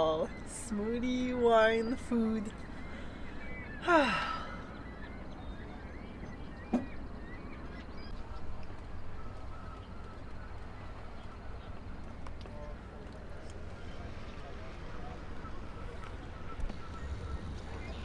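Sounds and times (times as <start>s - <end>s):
woman sighing: 3.8s - 4.8s.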